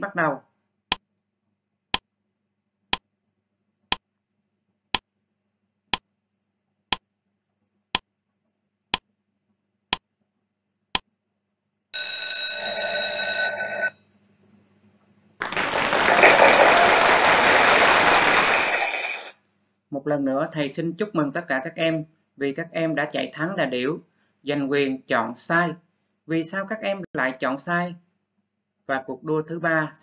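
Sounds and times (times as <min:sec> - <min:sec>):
alarm bell ringing: 0:12.0 - 0:14.0
burst of even noise: 0:15.4 - 0:19.3.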